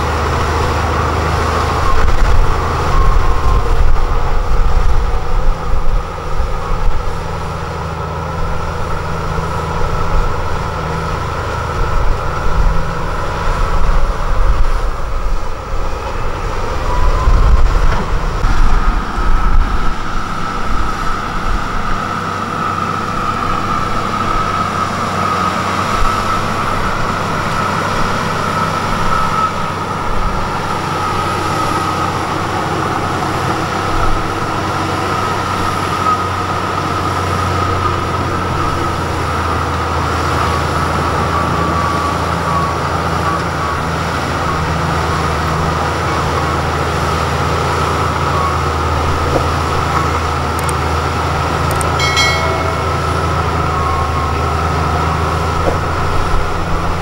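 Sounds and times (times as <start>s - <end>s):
bulldozer diesel engine under load: 0.0s - 57.0s
high-pitched whine: 12.6s - 33.1s, 51.6s - 57.0s.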